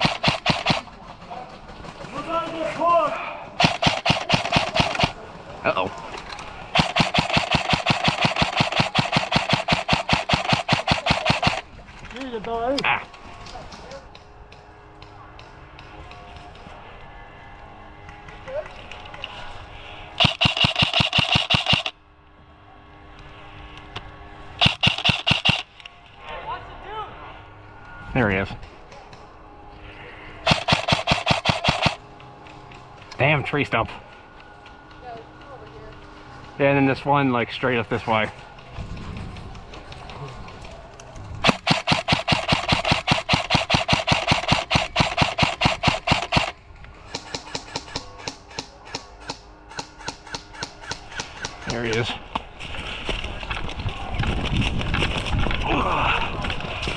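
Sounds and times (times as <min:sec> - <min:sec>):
airsoft rifle full-auto bursts: 0:00.0 - 0:00.9, 0:03.6 - 0:05.2, 0:06.7 - 0:11.6, 0:20.2 - 0:22.0, 0:24.6 - 0:25.7, 0:30.4 - 0:32.0, 0:41.4 - 0:51.7.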